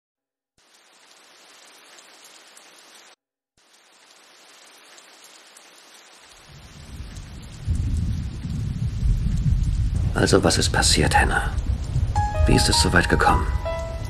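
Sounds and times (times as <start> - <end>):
steady rain hiss: 0.6 - 14.0
low rumble of thunder: 6.5 - 14.0.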